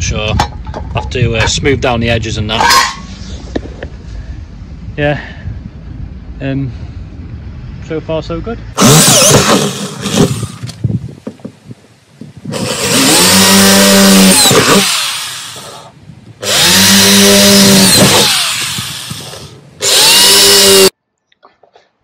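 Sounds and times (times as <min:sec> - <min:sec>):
cordless drill drilling metal: 0:08.8 - 0:10.7, 0:12.5 - 0:20.9.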